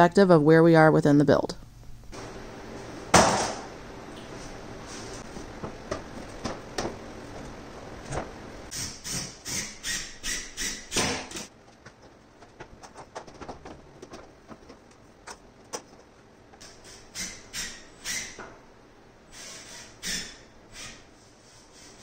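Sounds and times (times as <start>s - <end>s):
extension cord handling noise: 11.6s - 16.1s.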